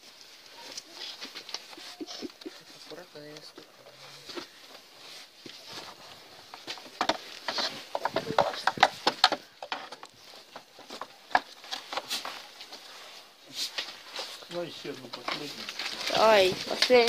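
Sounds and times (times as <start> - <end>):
plastic clicks and rustles: 5.4 - 12.8, 14.9 - 17.0.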